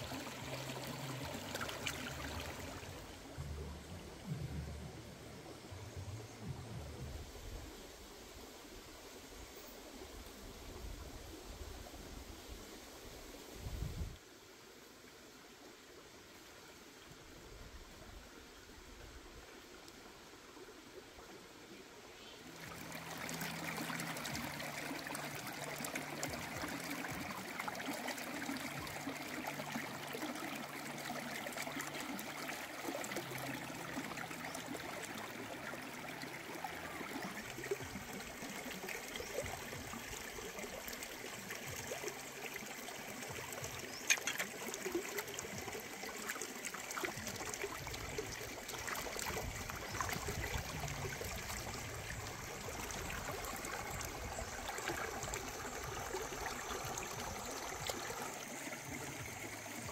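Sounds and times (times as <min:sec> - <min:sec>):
stream flowing over rocks: 0:00.0 - 0:59.9
water splashing from rinsing: 0:44.0 - 0:51.0.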